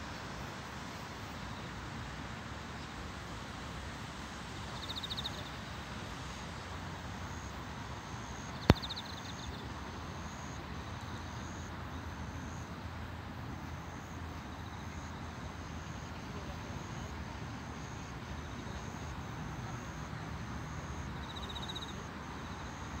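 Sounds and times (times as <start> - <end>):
distant city traffic hum: 0.0 - 23.0
insects chirping: 4.6 - 5.7, 6.5 - 23.0
sharp click: 8.7 - 9.1.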